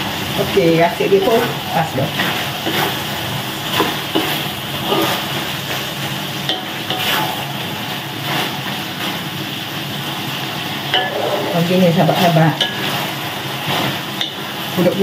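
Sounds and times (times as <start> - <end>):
stir-fry sizzling in wok: 0.0 - 15.0
wooden spatula scraping pan: 1.1 - 5.9, 6.8 - 7.4, 10.9 - 14.4
spatula clacks: 1.2 - 3.1, 3.7 - 7.4, 12.2 - 15.0.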